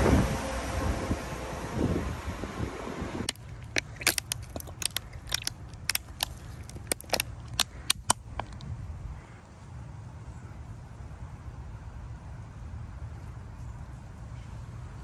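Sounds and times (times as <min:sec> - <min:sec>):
sharp clicks and crunches: 0:03.3 - 0:08.7.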